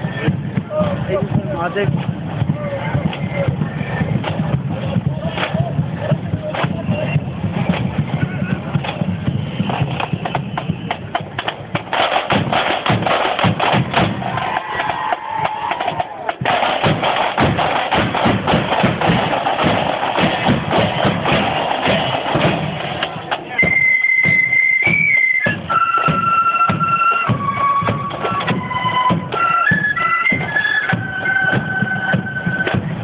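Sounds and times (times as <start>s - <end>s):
marching band drums: 0.0s - 33.0s
flutes playing held notes: 23.0s - 33.0s.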